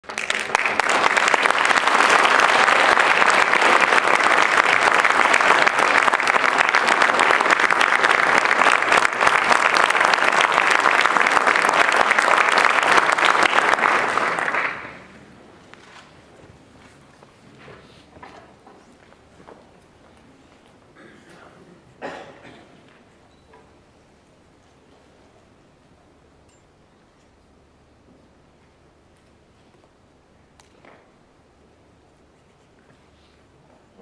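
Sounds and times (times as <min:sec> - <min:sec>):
audience applauding: 0:00.0 - 0:15.4.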